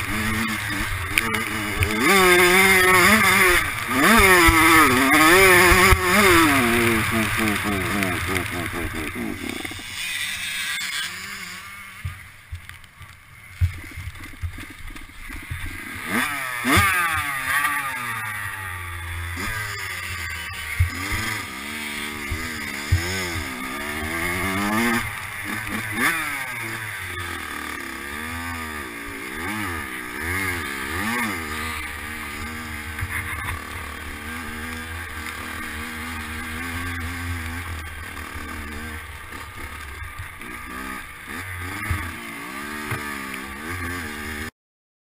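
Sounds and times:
dirt bike engine revving: 0.0 - 44.5.

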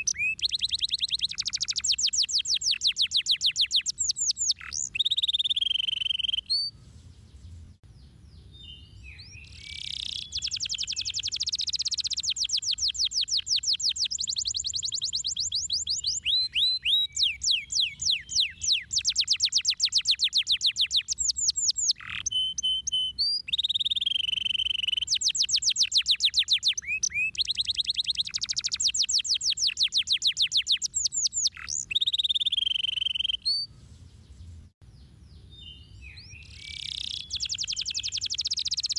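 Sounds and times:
canary singing trills: 0.0 - 6.8, 7.5 - 33.7, 34.4 - 38.9.

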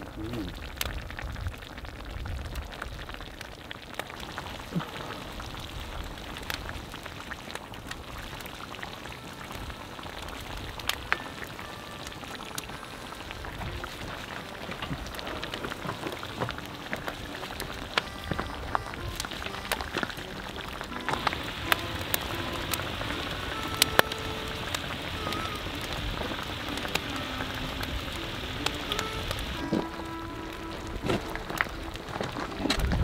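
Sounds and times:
campfire crackling and popping: 0.0 - 33.0
sauce simmering and sizzling: 0.0 - 33.0.

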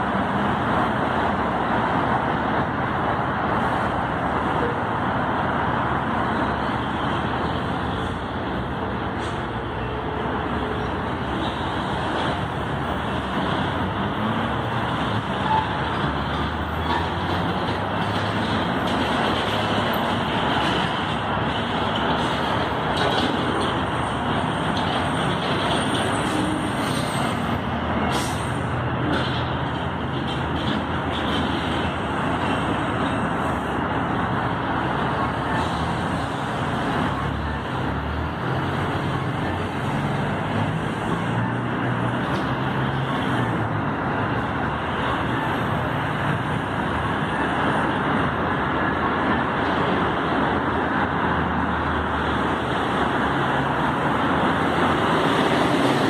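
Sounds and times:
heavy engine low rumble: 0.0 - 56.0
road traffic noise: 0.0 - 56.0.

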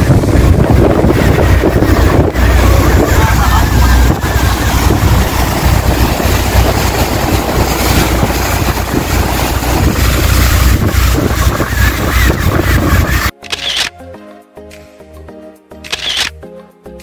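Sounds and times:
wind buffeting microphone: 0.0 - 13.3
water noise: 0.0 - 13.8
boat engine rumble: 0.0 - 13.9.

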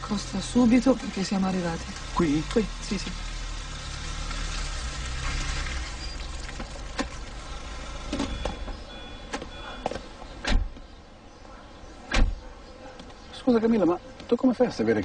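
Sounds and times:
car engine hum: 0.0 - 13.5
car door slamming: 8.0 - 10.8, 12.1 - 12.5
car door clicks and knocks: 8.1 - 10.9, 12.1 - 12.4.

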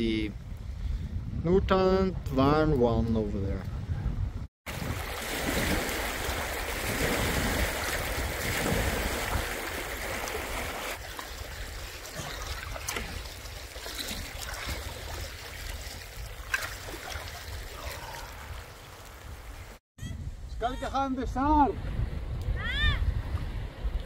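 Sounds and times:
wind rumbling on microphone: 0.0 - 24.0
flowing water: 4.7 - 19.8.

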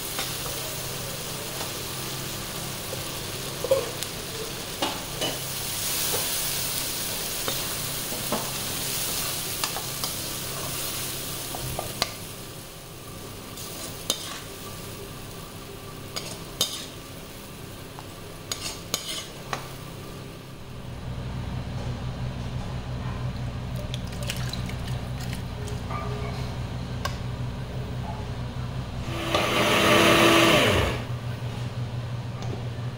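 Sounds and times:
onions sizzling in a pan: 0.0 - 20.5
metal spoon scraping a pan: 16.2 - 17.0, 18.5 - 19.4.

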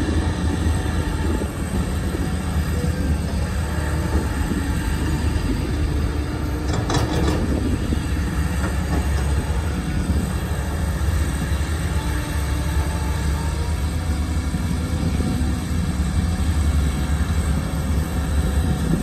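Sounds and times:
excavator diesel engine running: 0.0 - 19.0
metallic clatter: 6.6 - 7.7.

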